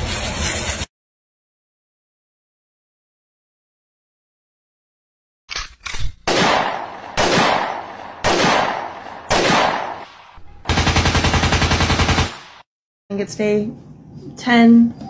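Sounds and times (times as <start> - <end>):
automatic gunfire burst: 6.3 - 10.0, 10.7 - 12.7
loud single gunshots: 6.3 - 10.1.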